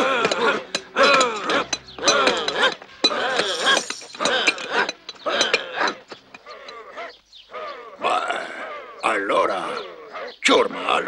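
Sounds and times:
picks and shovels clinking on rock: 0.0s - 6.8s.

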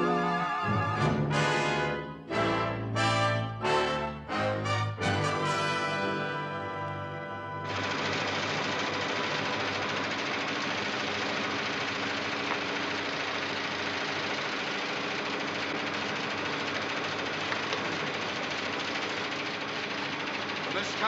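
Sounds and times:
rapid mechanical clatter: 7.7s - 21.0s.

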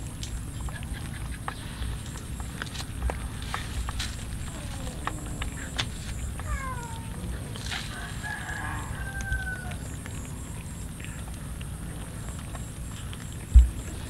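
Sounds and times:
cats eating off a plate: 0.0s - 14.0s
rooster crowing: 7.7s - 9.9s.

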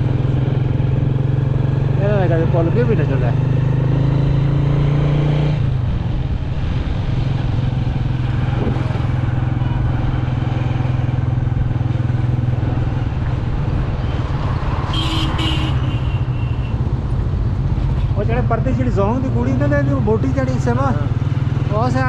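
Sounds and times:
motorcycle engine running: 0.0s - 4.9s, 5.7s - 14.2s
road noise: 0.0s - 22.0s
wind noise: 4.2s - 18.1s.

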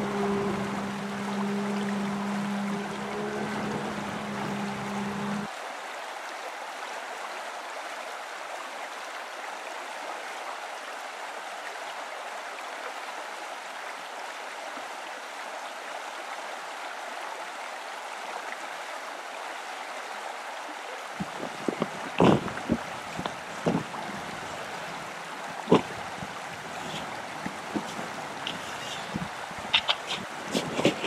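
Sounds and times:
low hum: 0.0s - 5.5s
fast river rushing: 0.0s - 31.0s.

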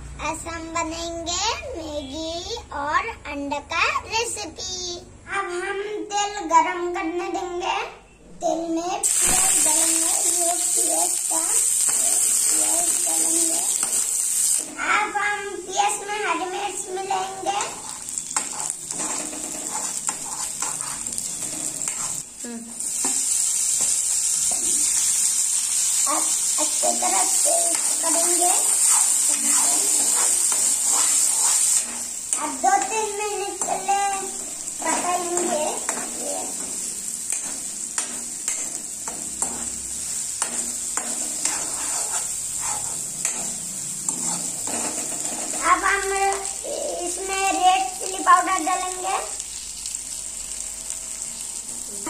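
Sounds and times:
onions sizzling in hot oil: 8.4s - 52.0s
steel spoon scraping a pan: 11.7s - 14.7s, 17.2s - 22.3s, 25.9s - 46.5s
metal ladle scraping pan: 17.6s - 22.2s, 40.4s - 45.6s.

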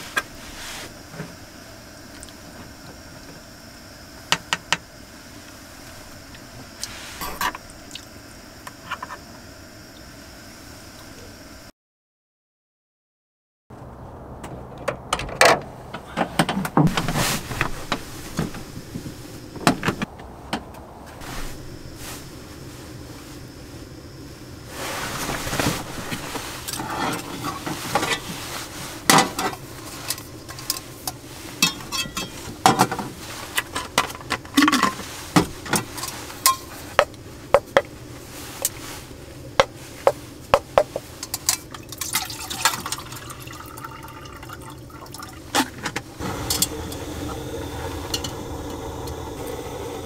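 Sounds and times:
metal cookware clinking: 31.6s - 32.9s.

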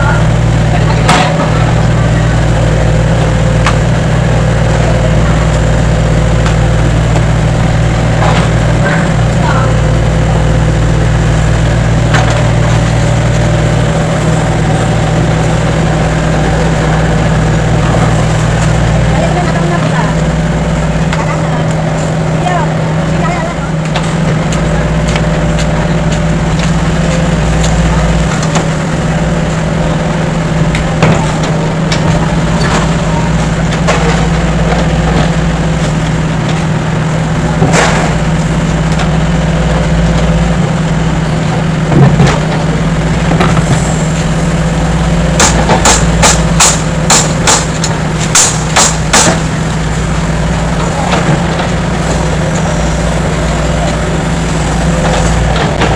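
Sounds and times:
excavator diesel engine running: 0.0s - 55.9s
sharp knocks: 45.4s - 49.4s.

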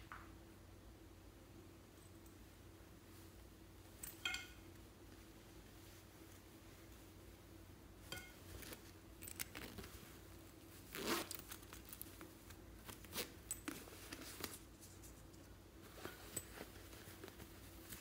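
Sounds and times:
backpack zipper opening: 10.9s - 11.6s.

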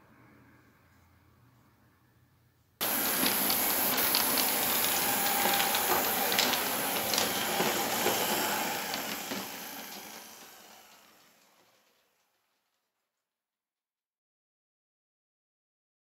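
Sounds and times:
model trams running on track: 2.8s - 12.2s.

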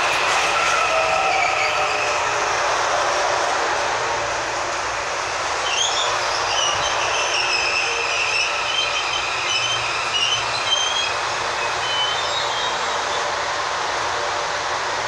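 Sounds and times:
brake and wheel squeals: 0.0s - 2.3s, 5.6s - 13.3s
electric train rolling: 0.0s - 15.0s.

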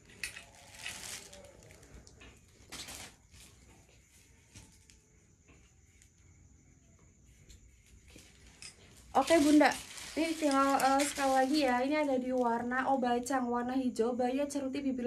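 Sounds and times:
garments rustling: 0.0s - 4.9s, 7.8s - 12.8s.

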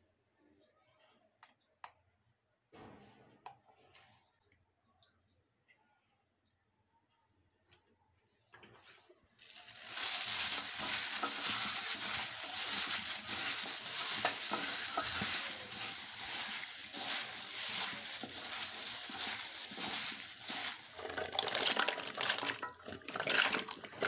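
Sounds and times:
vegetables sizzling in a pan: 9.4s - 22.8s.

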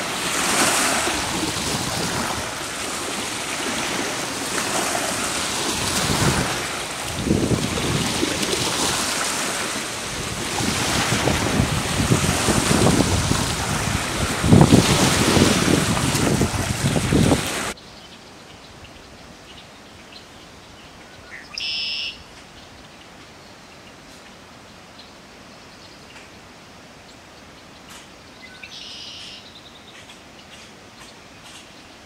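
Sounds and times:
wind buffeting microphone: 0.0s - 2.9s, 3.6s - 17.8s
waves washing against shore: 0.0s - 17.8s.

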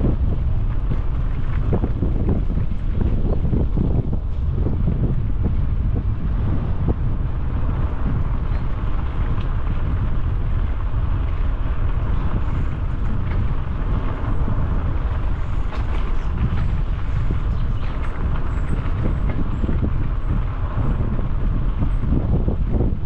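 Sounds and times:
wind rumbling on microphone: 0.0s - 23.0s.

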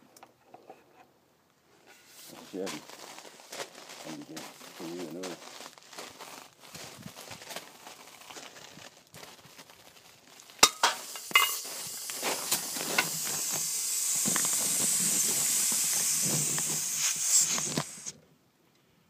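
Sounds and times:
loud hiss of air: 10.6s - 18.2s.

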